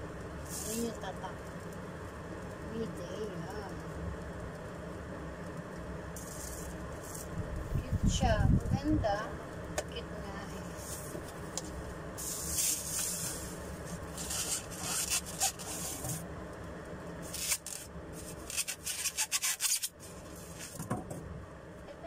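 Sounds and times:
plastic wrap rustling: 12.2 - 16.2, 17.2 - 20.8
styrofoam scraping: 12.2 - 16.2, 17.2 - 20.8.

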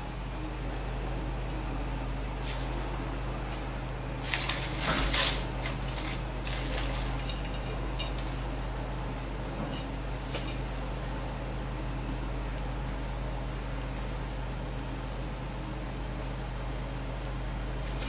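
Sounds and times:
leaves rustling: 2.4 - 7.3.

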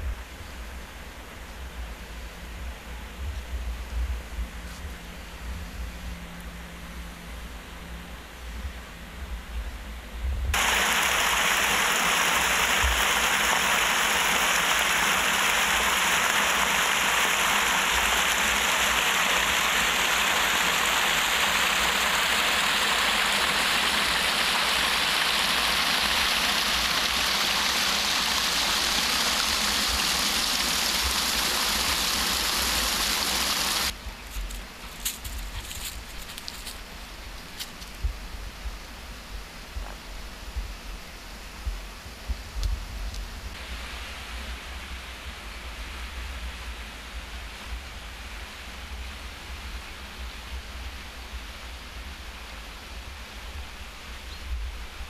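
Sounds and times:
water rushing through culvert: 10.5 - 34.0.

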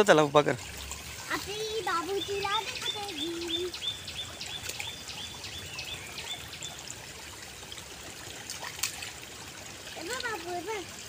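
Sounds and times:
stream trickling over stones: 0.0 - 11.0
bird chirping: 1.8 - 6.8.

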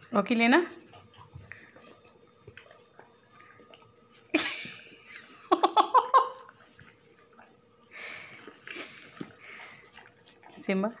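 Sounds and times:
quick giggling: 4.3 - 6.5.

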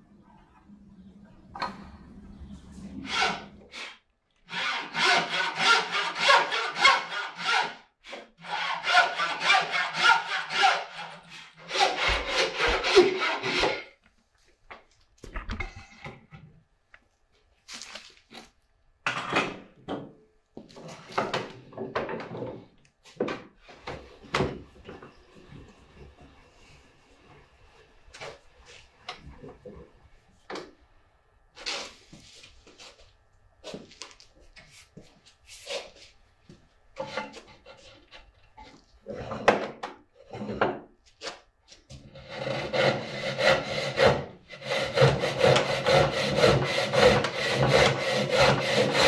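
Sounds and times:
saw rasping through wood: 3.0 - 13.9, 42.0 - 49.0.

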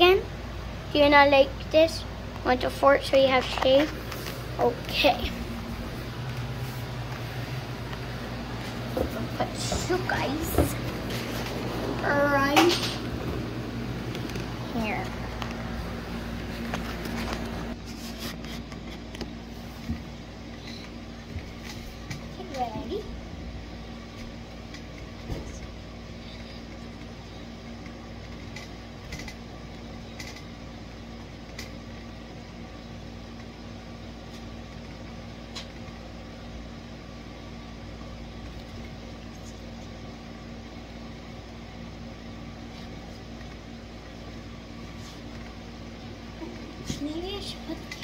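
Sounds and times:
mechanical hum: 0.0 - 48.0.

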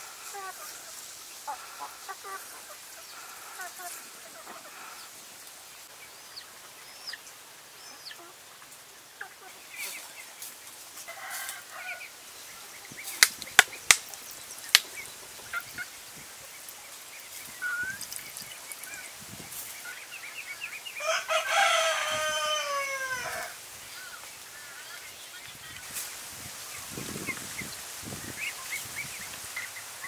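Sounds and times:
rooster crowing: 21.0 - 23.6.

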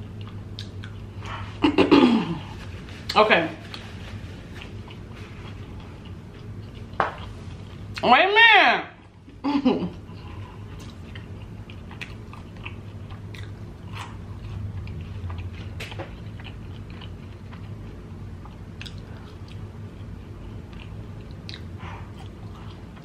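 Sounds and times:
low steady hum: 0.0 - 23.0
crunchy chewing: 10.2 - 23.0.

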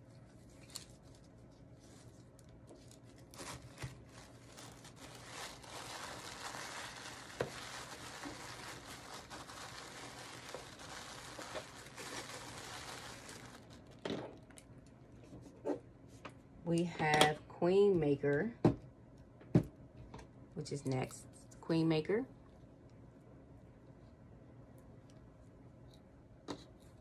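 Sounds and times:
tissue paper rustling: 0.2 - 14.0.

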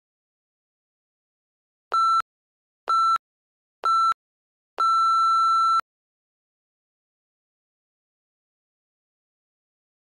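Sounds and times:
electronic timer beeps: 1.9 - 2.2, 2.9 - 3.2, 3.8 - 4.2, 4.8 - 5.8.

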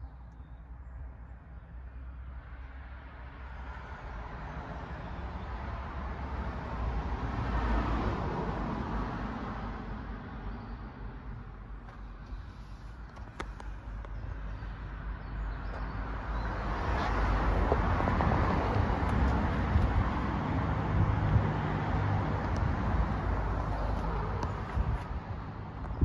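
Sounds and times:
vehicle passing by: 15.7 - 25.8.

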